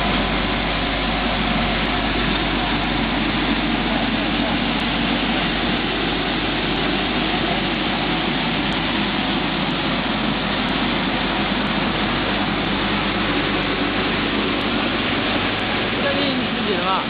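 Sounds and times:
factory machinery running: 0.0 - 17.0
low motor hum: 0.0 - 17.0.

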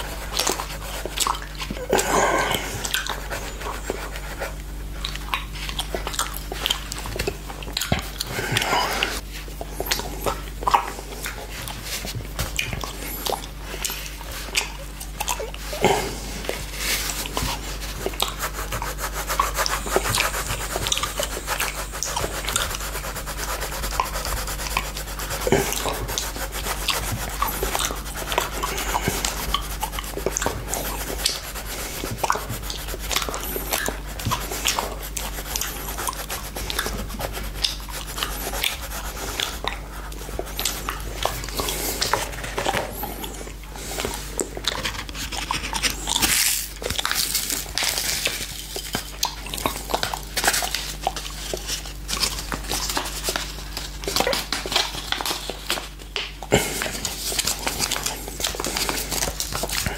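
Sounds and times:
pencil scratching on paper: 0.0 - 4.6, 15.9 - 43.0.

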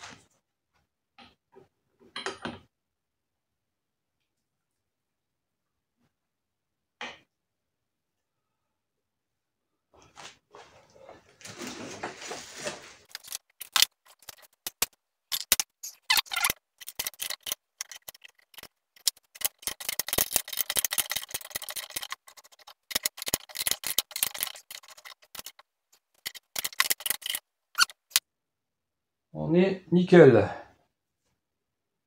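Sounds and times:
metal scraping: 11.6 - 28.2.

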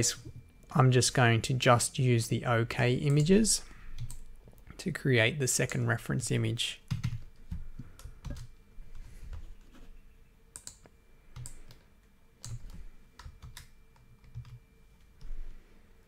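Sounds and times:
keyboard keys tapping: 6.9 - 9.5, 12.4 - 14.6.

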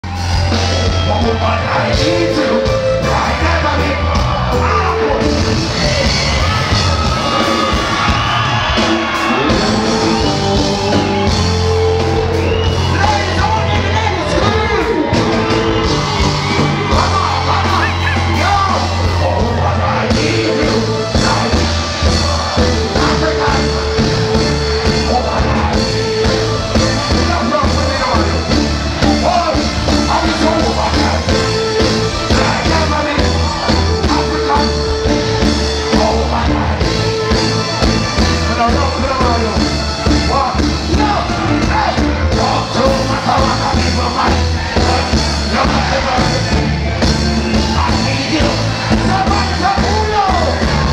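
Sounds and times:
heavy bass line: 0.0 - 50.9
live reggae band playing: 0.0 - 50.9
man singing: 0.7 - 6.5, 9.3 - 15.9, 16.7 - 46.7.

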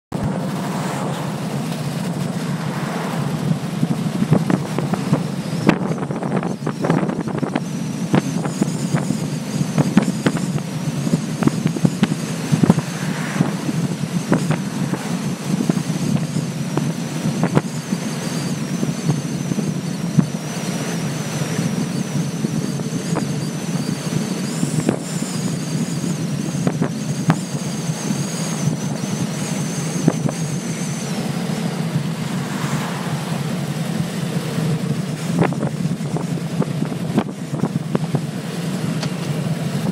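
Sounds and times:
motorcycle engine cruising: 0.2 - 39.9
wind buffeting microphone: 3.2 - 39.9.

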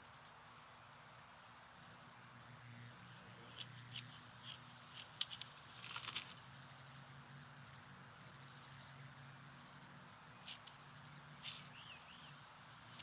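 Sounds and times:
faint hiss: 0.0 - 13.0
small clicks and ticks: 3.5 - 6.5, 10.4 - 10.8.

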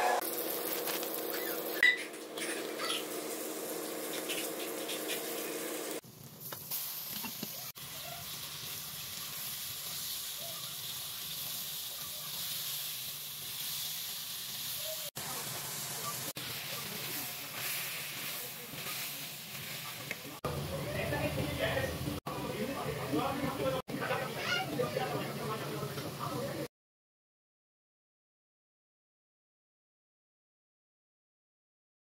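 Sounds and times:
chicken sizzling and hissing: 0.0 - 20.5
onions sizzling in oil: 0.0 - 26.6.

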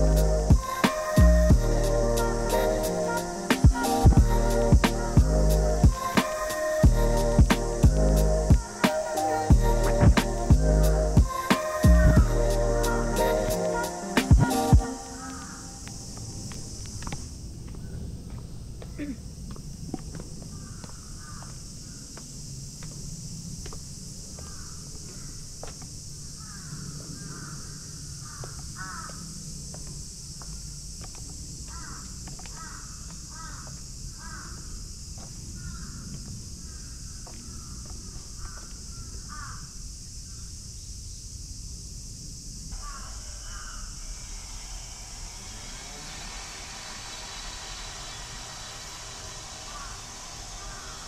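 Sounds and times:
low hum: 0.0 - 18.8, 42.7 - 51.0
steady high hiss: 0.0 - 51.0
crows cawing: 20.5 - 22.0, 24.4 - 25.3, 26.4 - 29.3, 31.7 - 34.7, 35.6 - 39.7, 42.8 - 44.6, 49.3 - 51.0.

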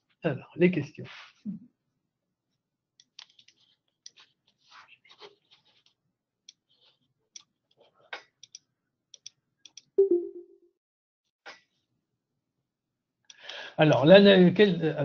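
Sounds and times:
mouse and keyboard clicking: 3.0 - 4.3, 6.5 - 8.6.

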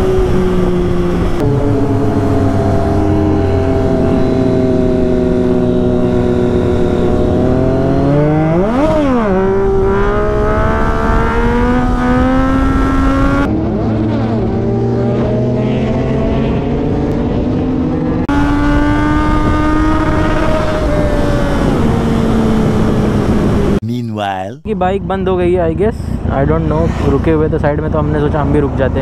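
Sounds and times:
motorcycle engine revving: 0.0 - 23.8.

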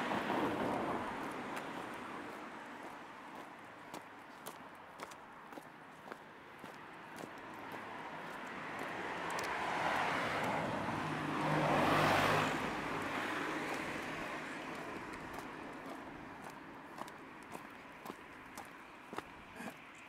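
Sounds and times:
car passing by: 0.0 - 3.5, 7.1 - 18.2.

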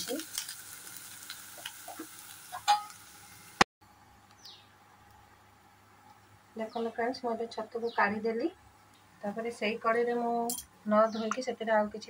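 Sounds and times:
mushrooms sizzling in hot oil: 0.0 - 3.6.

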